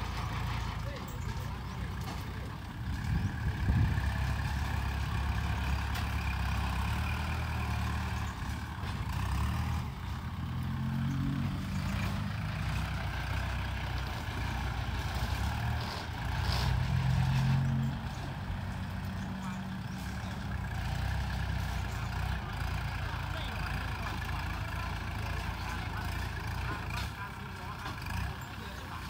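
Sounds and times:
tractor engine under load: 0:00.0 - 0:29.0.

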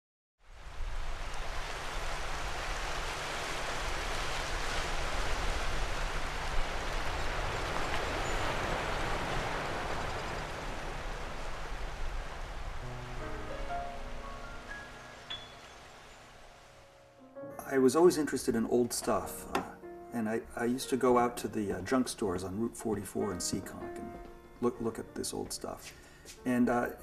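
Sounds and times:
sea surf washing over rocks: 0:00.5 - 0:13.1.

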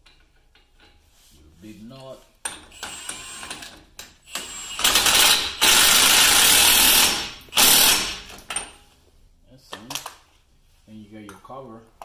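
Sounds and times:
power wrench spinning: 0:02.6 - 0:08.4.

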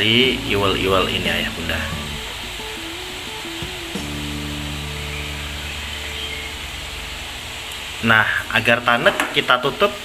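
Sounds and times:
background music with held notes: 0:00.0 - 0:08.0.

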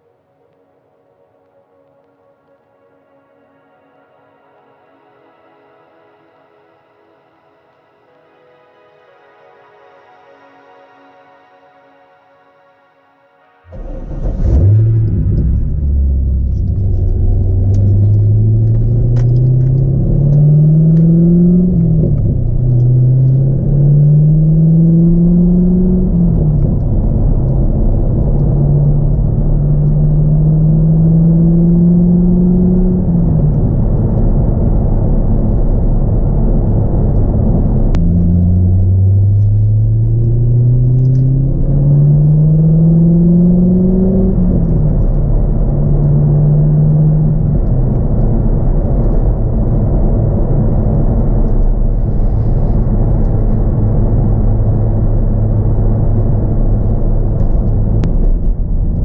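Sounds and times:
car engine accelerating: 0:13.4 - 0:59.0.

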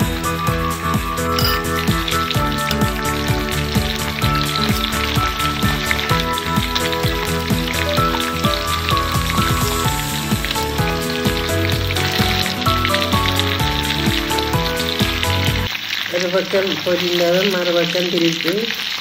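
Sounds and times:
frying in hot oil sizzling: 0:00.0 - 0:19.0
background tune: 0:00.9 - 0:15.7.

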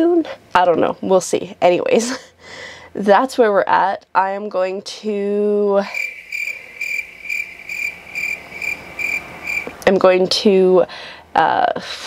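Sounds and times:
cricket chirping: 0:05.8 - 0:09.8.

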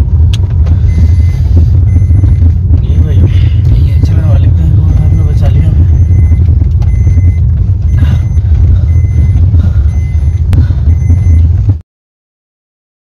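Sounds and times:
car engine and road rumble: 0:00.0 - 0:11.8
short high beeps: 0:04.8 - 0:11.5.

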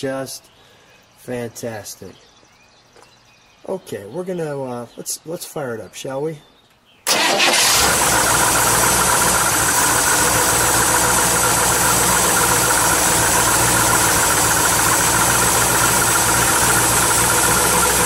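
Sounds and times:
car engine idling: 0:07.1 - 0:18.0.

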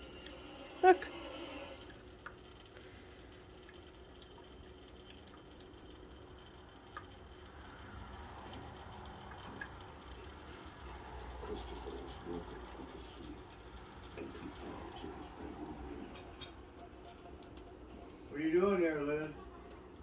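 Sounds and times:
cat licking water: 0:00.0 - 0:20.0
quiet room noise: 0:00.0 - 0:20.0.

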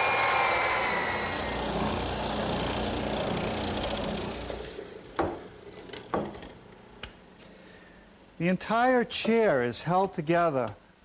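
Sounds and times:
belt sander sanding wood: 0:00.0 - 0:05.0.

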